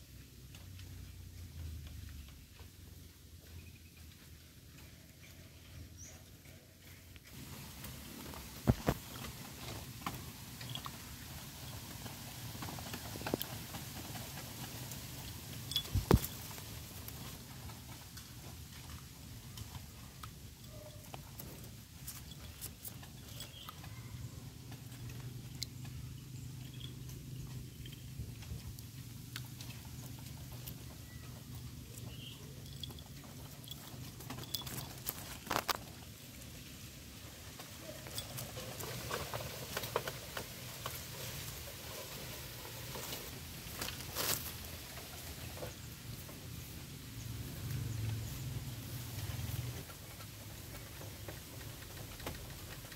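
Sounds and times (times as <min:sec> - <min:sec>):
rustling in leaf litter: 0:34.8 - 0:45.5.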